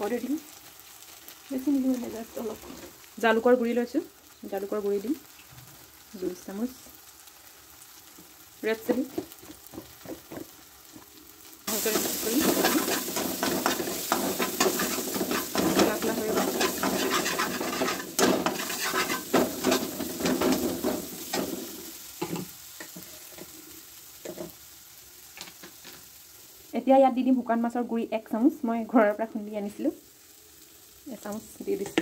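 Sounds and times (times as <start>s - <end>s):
masala sizzling in oil: 0.0s - 32.0s
metal spatula scraping pan: 11.8s - 21.6s.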